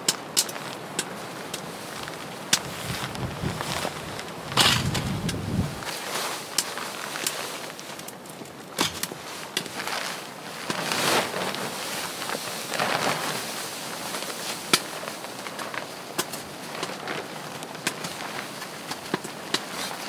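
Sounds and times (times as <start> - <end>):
canvas tent fabric rustling: 0.0 - 20.0.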